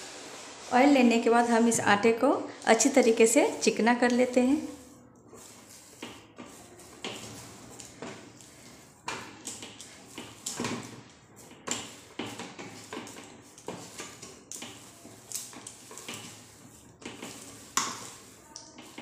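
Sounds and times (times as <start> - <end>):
hands kneading dough: 0.2 - 19.0.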